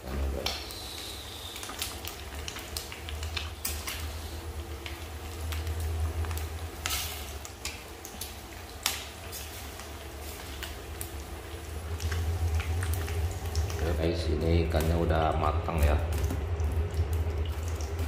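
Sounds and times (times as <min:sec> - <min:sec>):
fish frying in hot oil: 0:00.0 - 0:18.0
low rumble: 0:03.2 - 0:07.5, 0:10.8 - 0:18.0.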